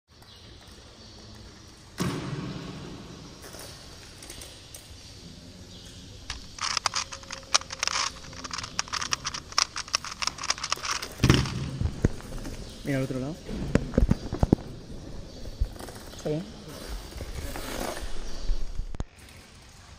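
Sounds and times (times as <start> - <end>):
puzzle dials clicking and rattling: 6.3 - 11.7.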